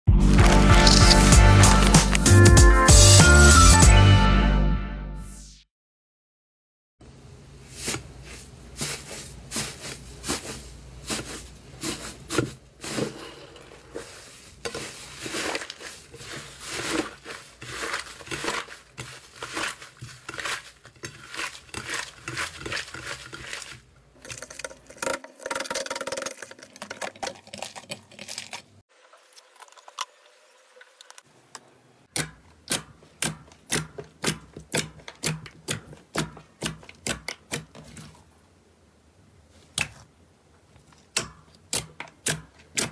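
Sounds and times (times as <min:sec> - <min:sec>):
slime crackling and crunching: 0:00.2 - 0:02.4.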